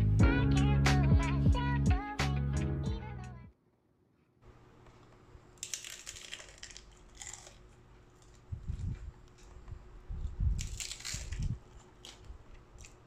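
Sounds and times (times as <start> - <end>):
crunching bites into taco shell: 5.6 - 9.5, 10.5 - 13.0.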